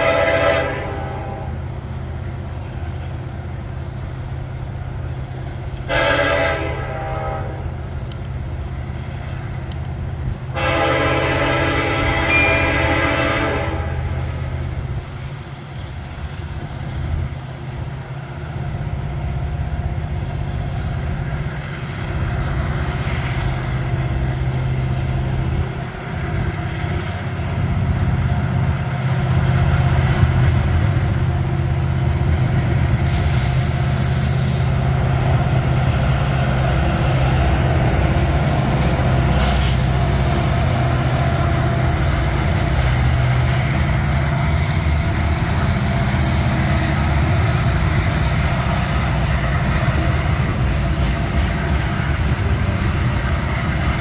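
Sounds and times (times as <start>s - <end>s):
train horn: 0.0s - 1.6s, 5.8s - 7.8s, 10.5s - 14.4s
diesel locomotive engine rumble: 0.0s - 54.0s.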